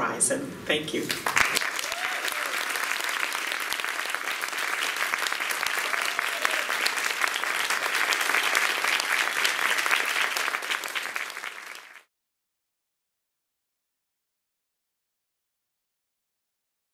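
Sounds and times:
audience applauding: 0:01.0 - 0:12.1.

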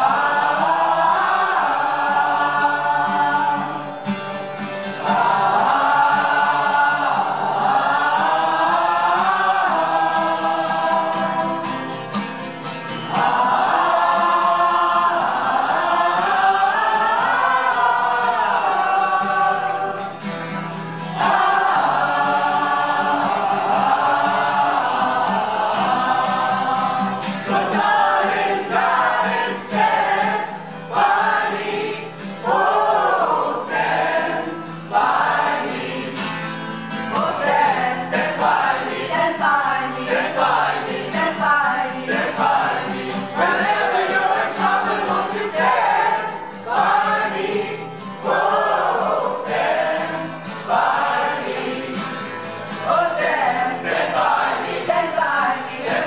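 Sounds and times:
choir singing in harmony: 0:00.0 - 0:56.0.

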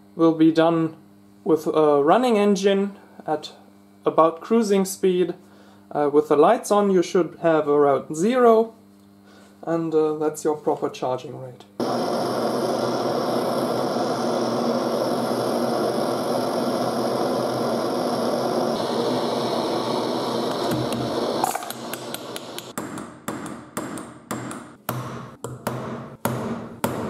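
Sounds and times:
blowlamp hissing: 0:11.8 - 0:22.8
hammer tapping a metal punch: 0:21.7 - 0:27.0.

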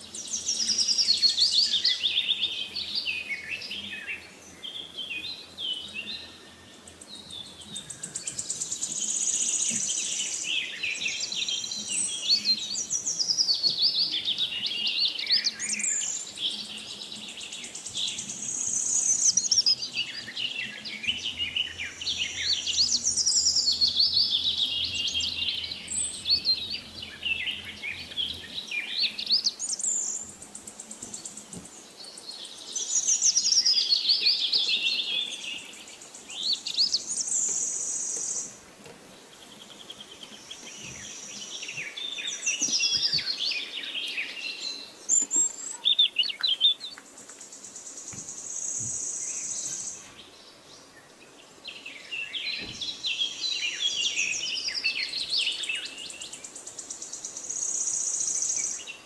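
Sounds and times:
songbirds chirping and trilling: 0:00.0 - 0:59.0.

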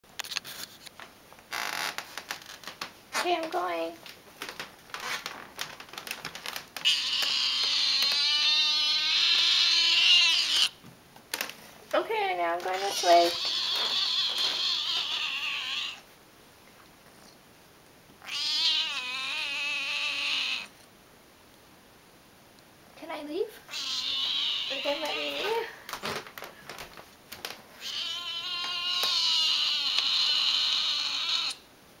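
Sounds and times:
cat meowing: 0:06.8 - 0:10.8, 0:12.8 - 0:16.1, 0:18.2 - 0:20.7, 0:23.7 - 0:25.7, 0:27.8 - 0:31.6.

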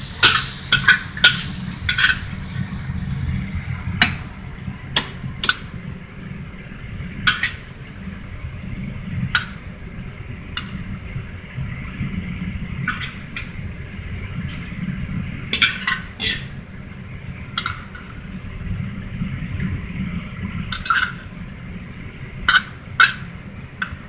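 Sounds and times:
metal spatula scraping in a wok: 0:00.0 - 0:02.7, 0:07.3 - 0:08.2, 0:12.8 - 0:13.6, 0:15.5 - 0:16.6, 0:20.7 - 0:21.4
faint sizzle: 0:00.0 - 0:24.0
steady low rumble: 0:00.0 - 0:24.0.

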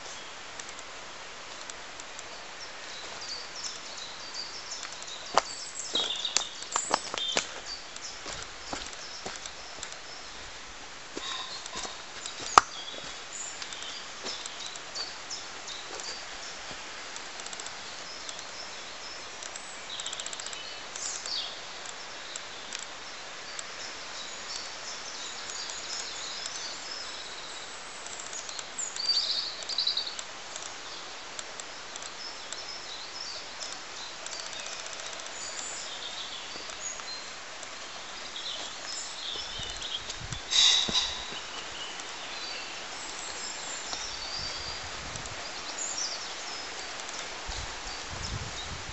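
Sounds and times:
steady background hiss: 0:00.0 - 0:48.9
bird chirps and calls: 0:11.2 - 0:16.6, 0:38.2 - 0:44.9.

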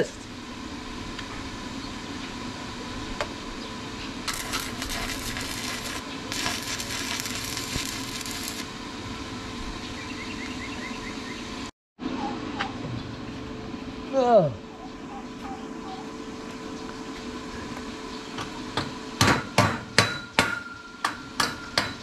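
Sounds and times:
welding arc crackling and hissing: 0:04.2 - 0:08.8.

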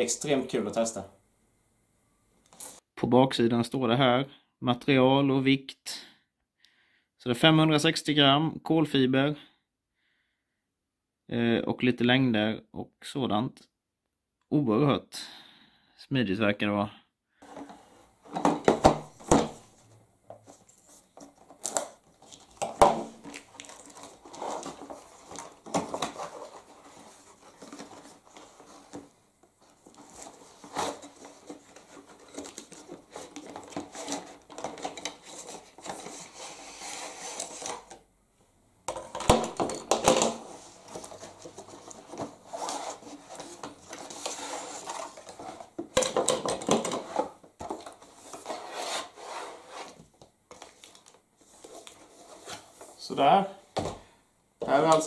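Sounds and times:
cardboard packaging rustling: 0:17.4 - 0:38.0, 0:38.9 - 0:53.0.

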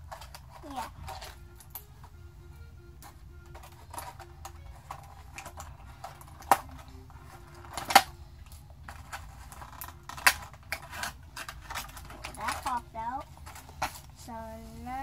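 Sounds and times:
plastic case clicks and crackles: 0:03.0 - 0:14.1.

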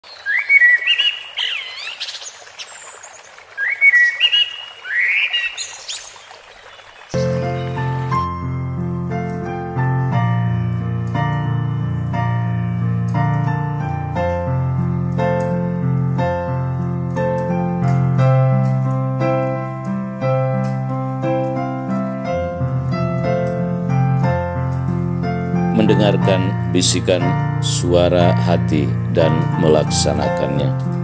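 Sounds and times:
piano music: 0:07.1 - 0:31.0.

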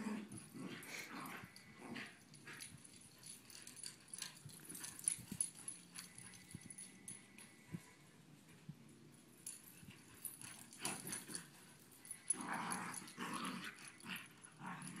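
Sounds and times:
dogs growling: 0:00.0 - 0:02.7, 0:10.2 - 0:11.5, 0:12.1 - 0:15.0.

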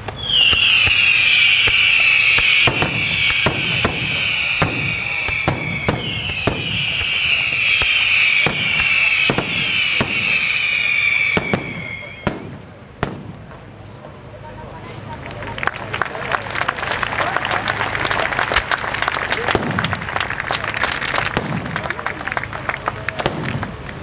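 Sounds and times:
fireworks whistling: 0:00.0 - 0:14.0, 0:19.4 - 0:22.0
fireworks bangs: 0:00.0 - 0:14.4, 0:18.5 - 0:24.0.

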